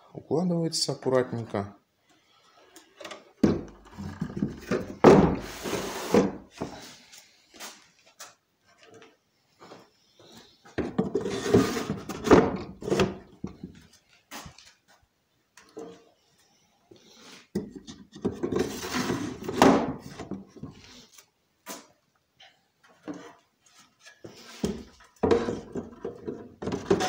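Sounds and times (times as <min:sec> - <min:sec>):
wood scraping and knocking on wood: 0:02.9 - 0:06.9, 0:10.7 - 0:14.7, 0:17.6 - 0:21.0, 0:22.9 - 0:27.0.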